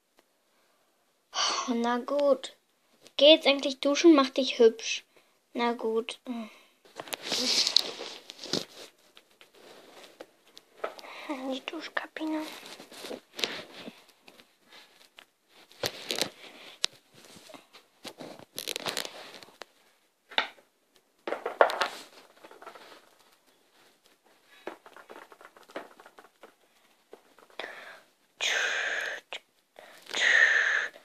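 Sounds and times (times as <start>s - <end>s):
rustling and crinkling by hand: 6.8s - 28.4s.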